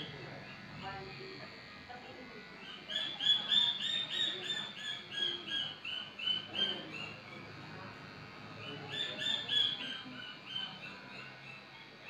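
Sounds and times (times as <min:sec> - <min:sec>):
high animal calls: 0:08.9 - 0:11.7.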